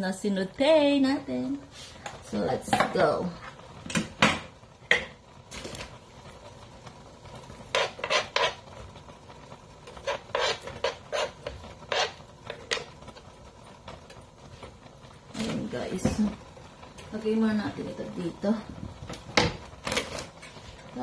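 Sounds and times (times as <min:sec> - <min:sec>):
utensil scraping plate: 0:07.7 - 0:08.8, 0:09.9 - 0:12.9.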